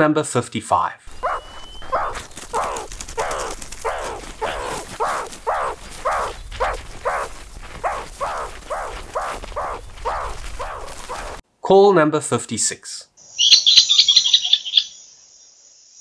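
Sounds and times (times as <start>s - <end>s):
wild animal calling: 1.1s - 11.4s.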